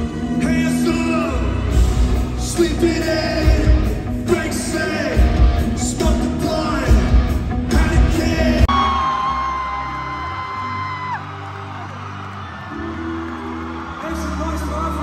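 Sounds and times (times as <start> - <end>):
heavy drums and bass: 1.6 - 8.7
person singing: 2.3 - 9.3.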